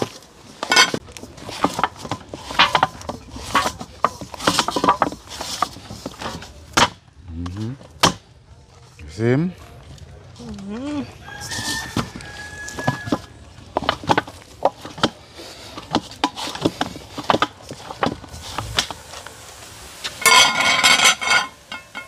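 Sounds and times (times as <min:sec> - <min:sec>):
pots and utensils clattering: 0:00.0 - 0:07.0, 0:12.7 - 0:19.0, 0:20.2 - 0:22.0.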